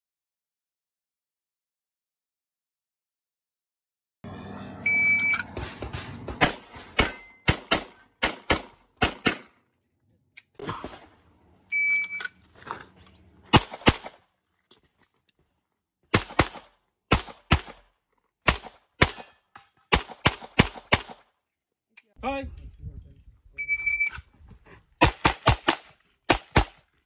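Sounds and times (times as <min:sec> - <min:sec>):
shot timer beep: 0:04.9 - 0:05.5, 0:11.7 - 0:12.3, 0:23.6 - 0:24.2
handgun shots: 0:06.4 - 0:09.6, 0:25.0 - 0:26.8.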